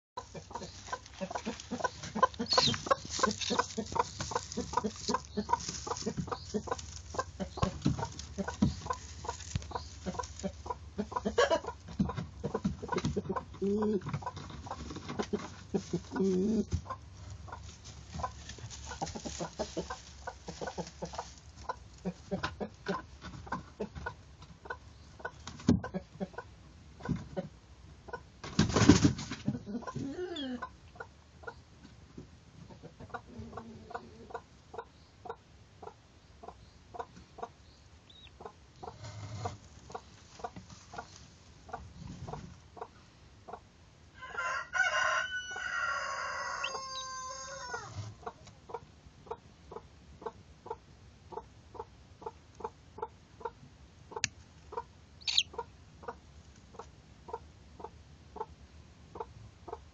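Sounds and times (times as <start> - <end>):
hen clucking softly: 0.2 - 28.3, 29.4 - 32.0, 32.6 - 59.9
rooster crowing: 44.2 - 47.9.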